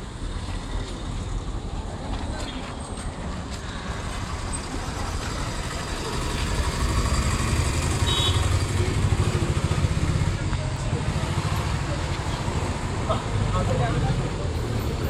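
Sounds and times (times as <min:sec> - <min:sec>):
street traffic: 0:00.0 - 0:15.0
vehicle engine throbbing: 0:03.8 - 0:15.0.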